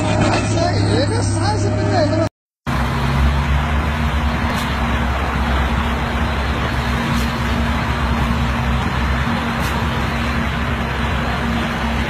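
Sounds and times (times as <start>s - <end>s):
diesel engine running: 0.0s - 12.0s
conveyor mechanical noise: 2.7s - 12.0s.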